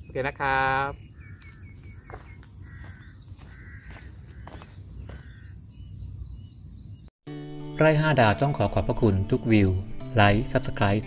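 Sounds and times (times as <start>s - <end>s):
insects droning: 0.0s - 7.0s
birds giving harsh calls: 0.0s - 7.1s
high bird chirps: 0.0s - 7.1s.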